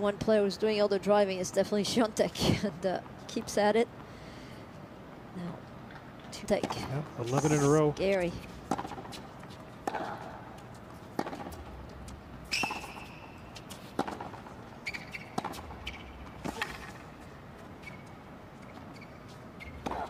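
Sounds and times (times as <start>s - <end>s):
racquet striking tennis ball: 8.6s - 9.2s, 9.8s - 10.4s, 11.1s - 11.8s, 12.5s - 17.2s, 19.7s - 20.0s
shoe squeaks on court: 12.5s - 13.9s, 14.8s - 17.1s, 17.8s - 20.0s.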